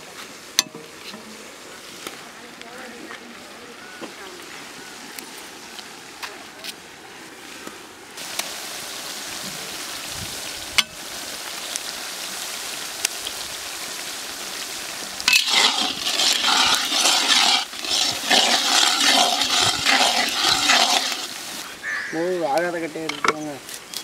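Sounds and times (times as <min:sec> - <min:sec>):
onions sizzling in hot oil: 0:08.2 - 0:22.0
spatula stirring and scraping: 0:15.3 - 0:21.7.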